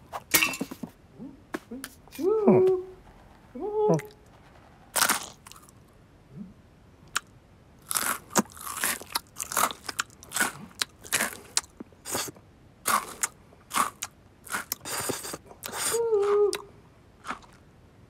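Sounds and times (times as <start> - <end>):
cartoon cat crunching food: 4.9 - 5.8, 7.1 - 12.3, 12.9 - 16.6, 17.2 - 17.6.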